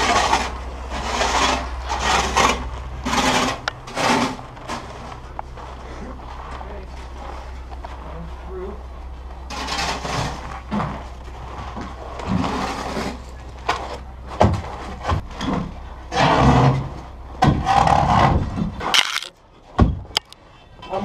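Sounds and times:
shovels scraping ice: 19.0 - 19.3.

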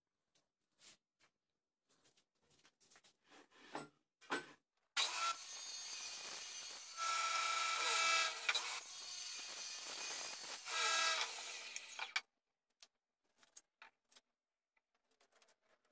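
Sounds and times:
saw blade cutting wood: 5.0 - 12.2.

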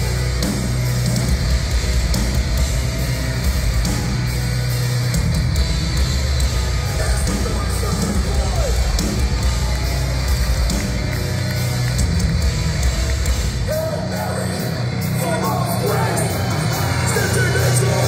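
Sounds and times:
hardcore band playing live: 0.0 - 18.0
shouted vocals: 13.6 - 18.0.

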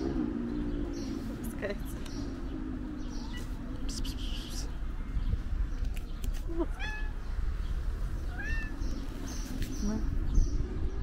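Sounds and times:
cat meowing: 6.6 - 7.2, 8.2 - 8.8.

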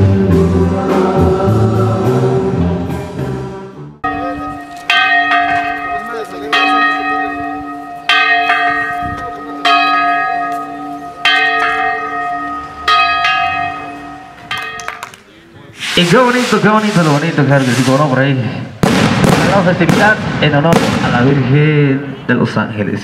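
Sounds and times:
large church bell tolling: 4.0 - 15.0.

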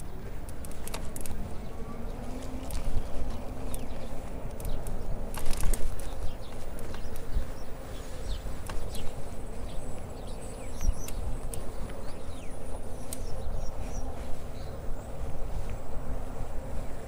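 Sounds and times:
wind on microphone: 0.0 - 17.0
light clicks: 2.6 - 7.3, 10.7 - 12.1, 13.0 - 13.4
high falling bird chirps: 5.9 - 15.2.

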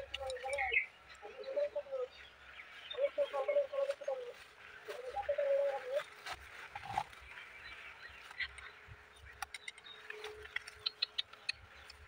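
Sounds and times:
footsteps through grass: 0.0 - 10.8
sticks clicking and rustling: 9.3 - 12.0.

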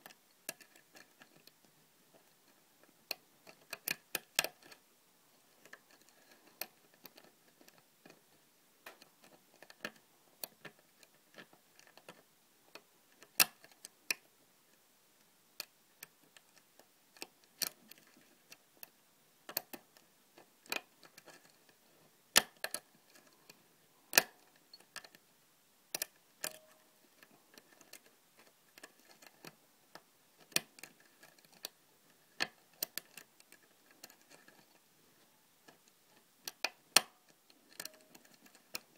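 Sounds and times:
lock pick metallic clicks: 24.1 - 25.1, 25.9 - 26.9, 36.4 - 38.8.

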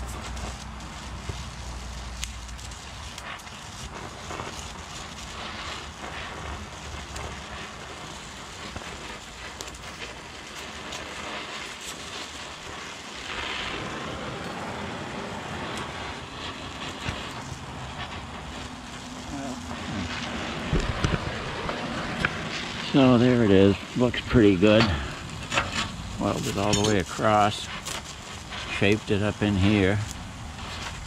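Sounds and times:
small crackles and pops: 0.0 - 31.0
welding torch hissing: 0.0 - 31.0.

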